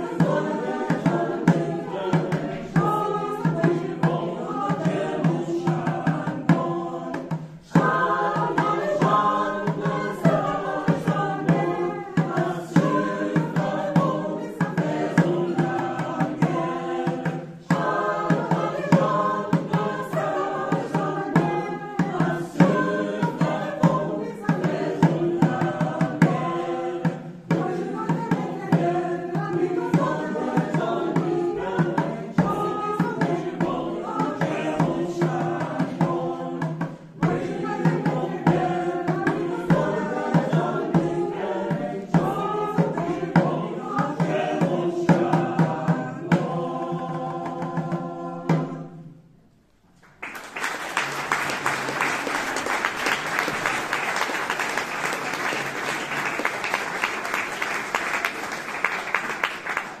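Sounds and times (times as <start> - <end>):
hand drum beat: 0.0 - 48.8
mixed choir singing: 0.0 - 49.2, 50.6 - 60.0
audience applauding: 50.0 - 60.0.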